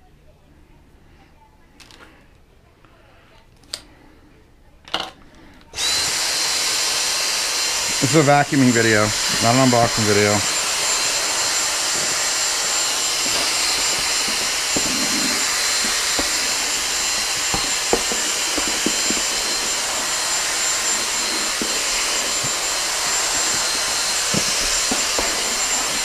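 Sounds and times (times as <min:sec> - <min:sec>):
vacuum cleaner motor whine: 0:05.7 - 0:26.0.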